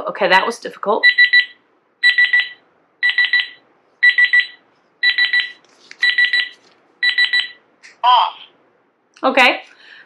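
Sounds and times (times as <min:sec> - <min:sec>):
thermometer beeping high pips: 0:01.0 - 0:07.6.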